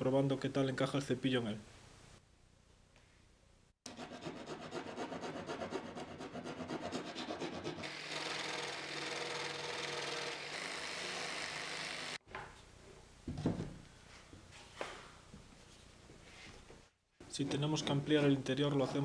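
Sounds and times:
hand rasp filing wood: 3.9s - 12.2s
jigsaw cutting plywood: 7.8s - 12.2s.

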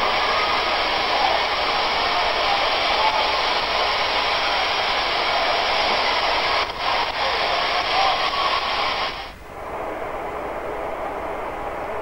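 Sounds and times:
loud rushing hiss: 0.0s - 9.4s.

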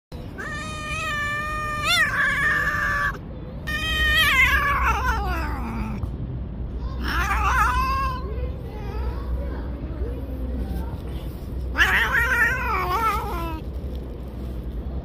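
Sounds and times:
cat yowling angrily: 0.2s - 6.1s, 7.0s - 8.3s, 11.7s - 13.6s.

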